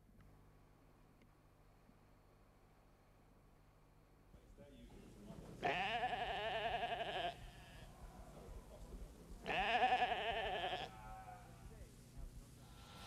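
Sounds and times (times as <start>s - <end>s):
sheep bleating: 5.6s - 8.4s, 9.4s - 11.6s.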